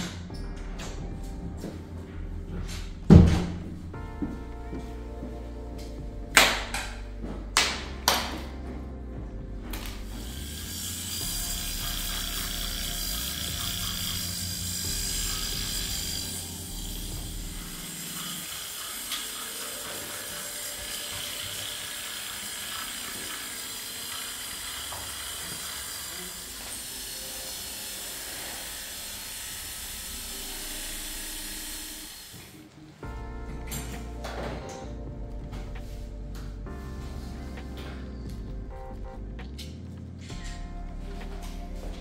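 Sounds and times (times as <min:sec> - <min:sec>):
electric clippers buzzing: 0:10.1 - 0:32.6.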